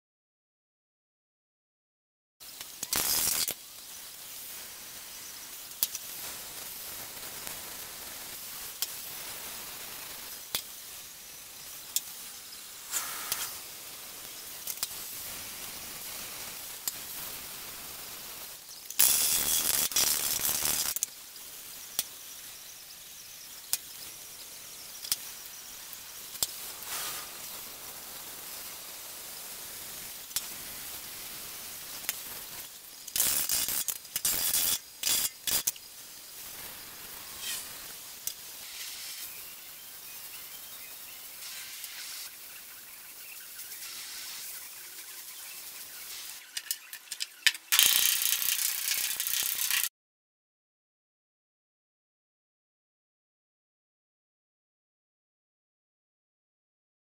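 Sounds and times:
welding hiss with clicks: 0:02.4 - 0:49.9
loud harsh welding burst: 0:02.5 - 0:23.2, 0:25.9 - 0:39.4, 0:41.3 - 0:42.4.

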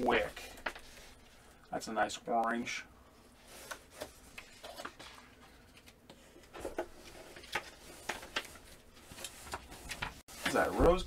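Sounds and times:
vinyl sheets clicking and rustling: 0:03.4 - 0:11.0.

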